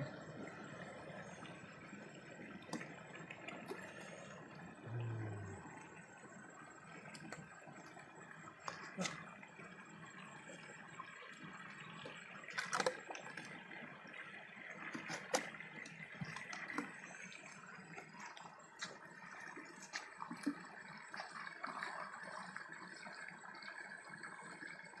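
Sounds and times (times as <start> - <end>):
stream running over rock: 0.0 - 25.0.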